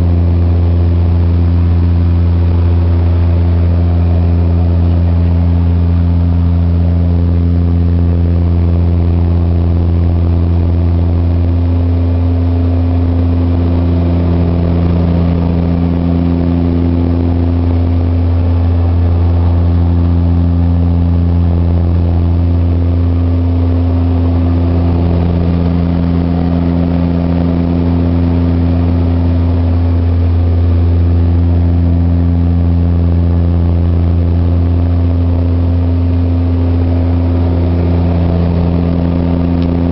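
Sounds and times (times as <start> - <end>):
turboprop engines droning: 0.0 - 39.9.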